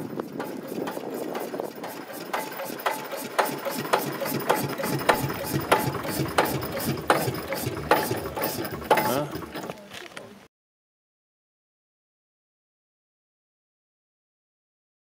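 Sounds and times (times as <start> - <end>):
machine rumbling: 0.0 - 10.5.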